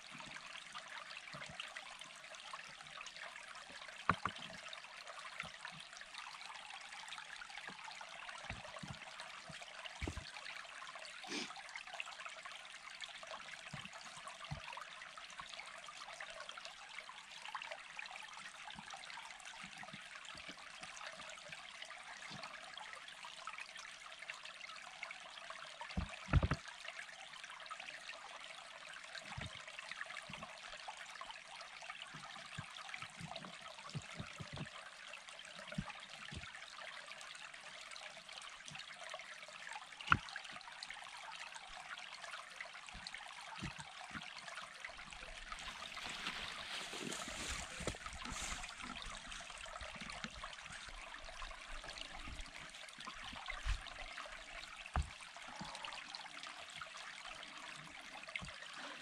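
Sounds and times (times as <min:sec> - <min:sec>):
stream water trickling: 0:00.0 - 0:59.0
stones clunking on a wall: 0:26.0 - 0:26.6.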